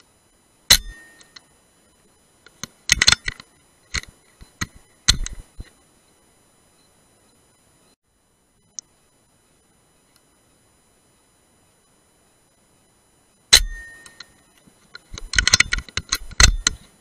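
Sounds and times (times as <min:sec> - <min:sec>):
sharp clicks and knocks: 0:02.4 - 0:05.8, 0:13.6 - 0:17.0.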